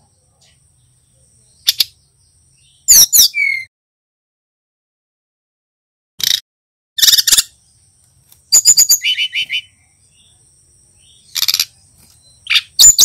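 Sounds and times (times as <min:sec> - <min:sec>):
bird chirping: 0:00.0 - 0:03.7, 0:07.0 - 0:13.0.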